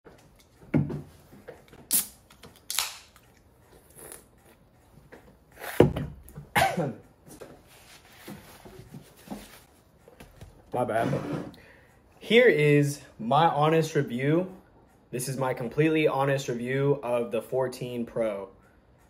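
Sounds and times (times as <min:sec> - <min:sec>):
can tab cracking open: 0:01.8 - 0:03.2.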